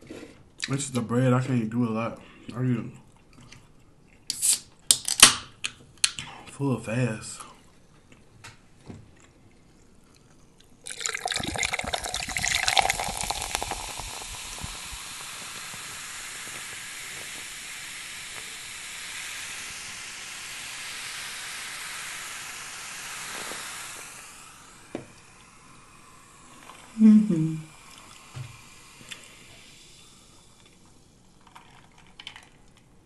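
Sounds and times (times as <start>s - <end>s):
drink fizzing: 9.6s - 33.0s
soft drink pouring into glass: 10.1s - 16.1s, 27.7s - 33.0s.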